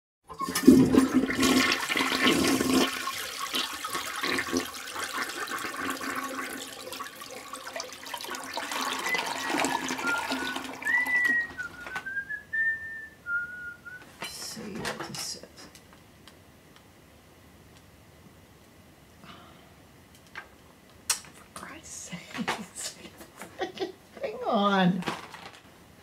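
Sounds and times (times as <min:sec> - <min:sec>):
toilet flushing: 0:00.3 - 0:12.1
person whistling: 0:08.8 - 0:14.0.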